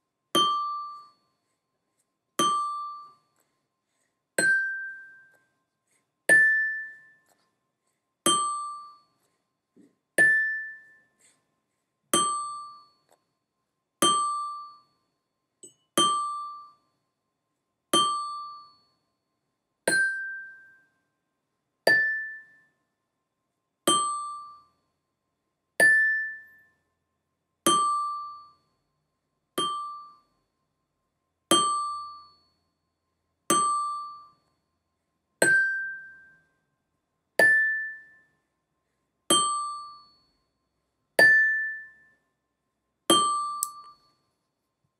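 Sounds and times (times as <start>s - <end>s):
glockenspiel notes struck: 0.4s - 1.3s, 2.4s - 3.3s, 4.4s - 5.4s, 6.3s - 7.4s, 8.3s - 9.1s, 10.2s - 11.1s, 15.6s - 16.8s, 18.0s - 19.0s, 19.9s - 20.9s, 21.9s - 22.7s, 35.4s - 36.4s, 37.4s - 38.3s, 39.3s - 40.4s, 41.2s - 42.2s, 43.1s - 44.2s.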